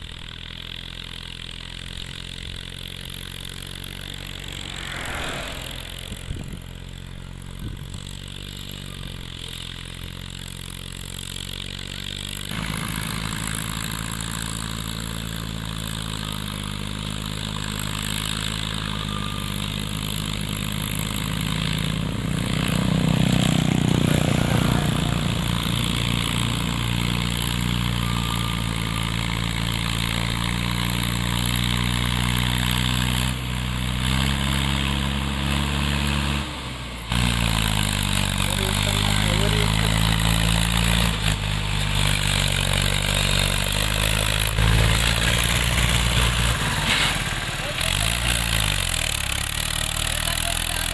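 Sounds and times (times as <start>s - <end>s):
vehicle engine running: 0.0s - 50.9s.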